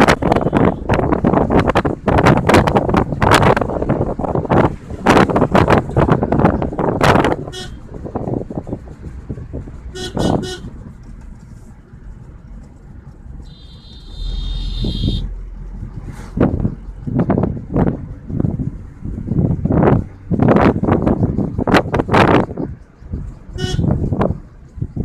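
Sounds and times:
car horn honking: 0:00.0 - 0:01.0, 0:07.3 - 0:07.9, 0:09.9 - 0:10.7, 0:13.4 - 0:15.3, 0:23.5 - 0:24.0
wind buffeting microphone: 0:00.0 - 0:11.0, 0:15.4 - 0:25.0
car driving rumble: 0:00.0 - 0:25.0.

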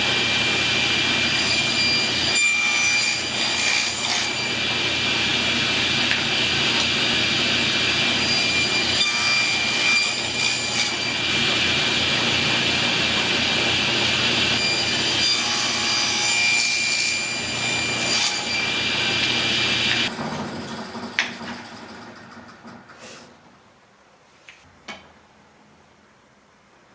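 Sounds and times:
saw blade cutting wood: 0:00.0 - 0:20.1
table saw whine: 0:00.0 - 0:22.8.

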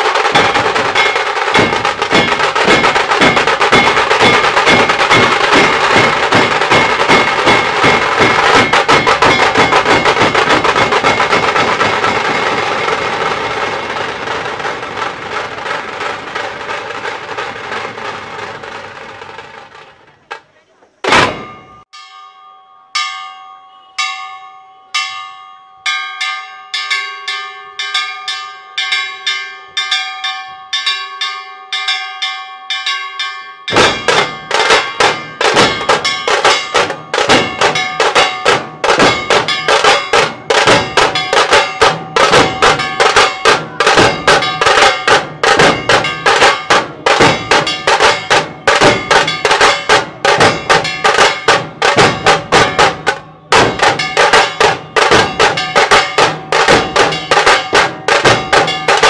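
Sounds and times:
ringing metallic strikes: 0:00.0 - 0:18.8, 0:21.0 - 0:59.0
fast dense drum beat: 0:00.0 - 0:19.8, 0:33.7 - 0:59.0.

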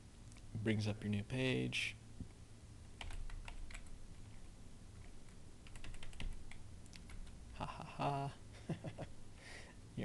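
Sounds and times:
typing on computer keyboard: 0:03.0 - 0:03.9, 0:05.6 - 0:07.4.

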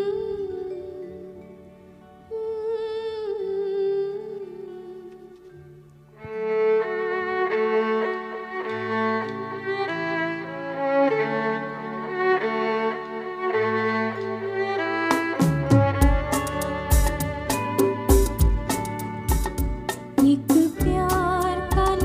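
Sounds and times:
violin melody: 0:00.0 - 0:22.0
percussion strikes: 0:15.1 - 0:22.0.

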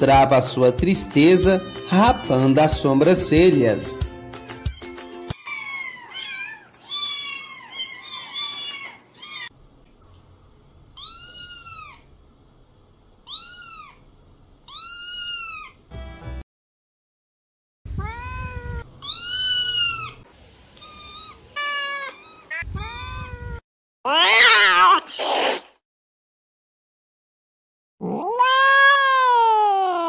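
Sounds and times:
cat meowing: 0:04.7 - 0:09.5, 0:11.0 - 0:12.1, 0:13.2 - 0:14.0, 0:14.6 - 0:15.8, 0:17.9 - 0:20.2, 0:20.8 - 0:25.4, 0:28.0 - 0:30.0.

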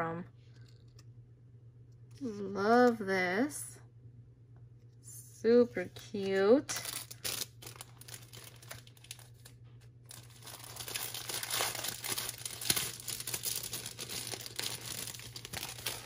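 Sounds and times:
cellophane crinkling: 0:06.2 - 0:16.0.

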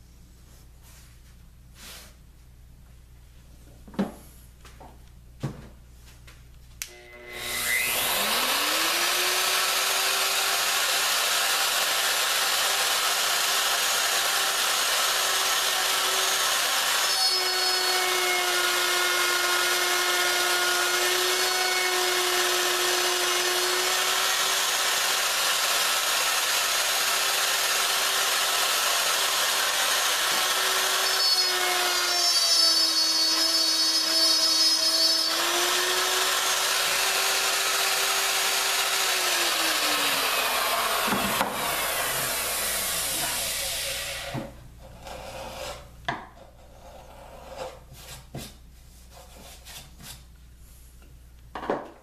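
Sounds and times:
router whining while cutting wood: 0:06.9 - 0:44.4.

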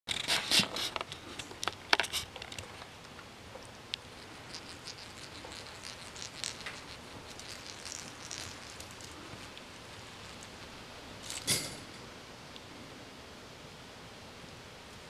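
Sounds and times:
sharp clicks and rustles: 0:00.1 - 0:11.8.

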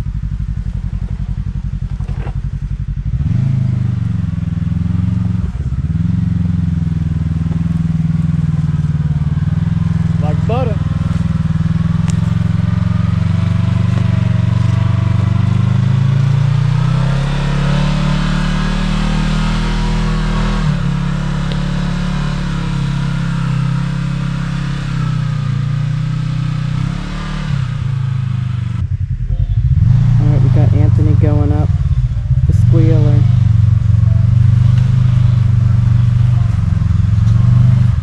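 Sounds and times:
engine revving on dirt climb: 0:00.0 - 0:38.0
low pulsing engine rumble: 0:00.0 - 0:38.0.

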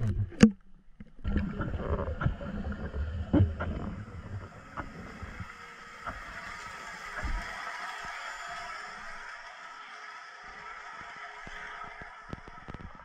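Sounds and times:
muffled underwater rumble and hiss: 0:01.4 - 0:13.0.

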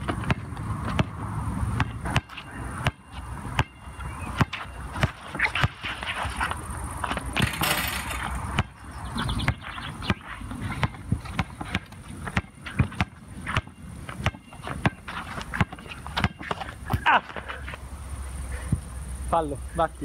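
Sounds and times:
basketball bouncing on hard court: 0:00.0 - 0:05.9, 0:07.0 - 0:16.7
sneakers scuffing on court: 0:01.8 - 0:17.8.

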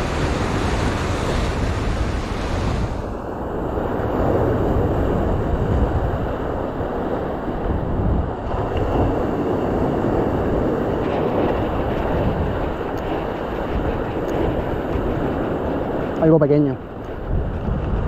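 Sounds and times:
surf breaking over rocks: 0:00.0 - 0:06.3
wind buffeting microphone: 0:00.0 - 0:18.0.

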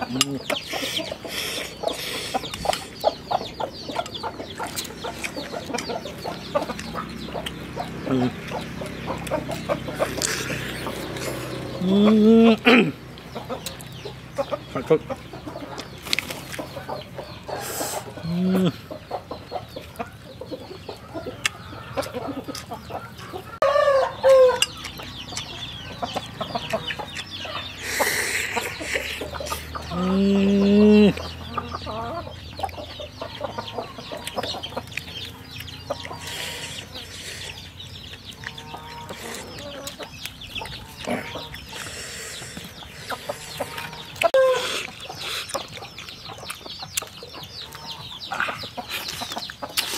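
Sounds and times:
hens clucking: 0:00.0 - 0:49.9
chewing: 0:03.9 - 0:11.8, 0:24.5 - 0:29.8, 0:33.9 - 0:49.9.

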